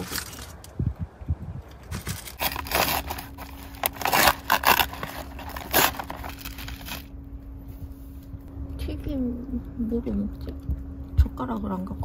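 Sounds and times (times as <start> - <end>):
paper wrapping rustling: 1.9 - 7.1.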